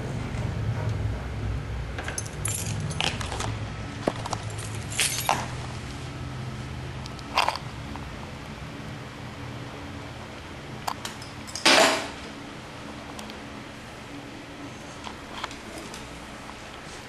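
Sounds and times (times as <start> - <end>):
dog collar tags jingling: 2.2 - 3.5, 4.3 - 5.6.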